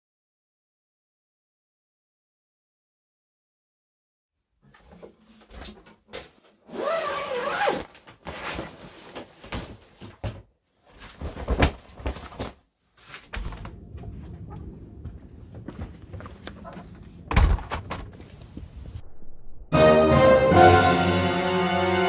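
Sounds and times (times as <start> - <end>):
knocks and thuds: 17.2 - 18.2.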